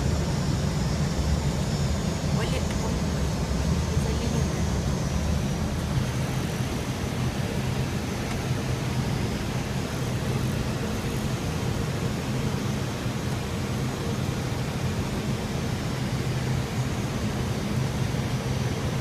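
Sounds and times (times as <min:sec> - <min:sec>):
aircraft cockpit engine rumble: 0:00.0 - 0:19.0.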